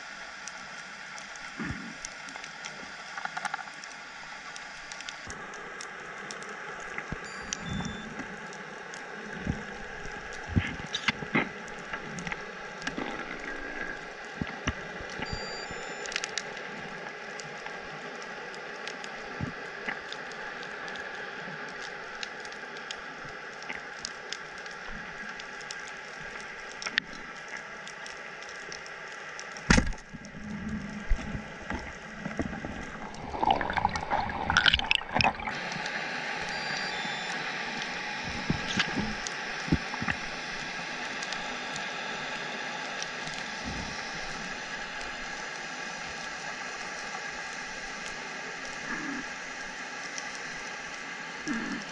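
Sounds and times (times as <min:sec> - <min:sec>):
muffled underwater hiss: 0:00.0 - 0:51.9
faint clicks: 0:00.3 - 0:33.2
rushing gurgling water: 0:29.7 - 0:42.9.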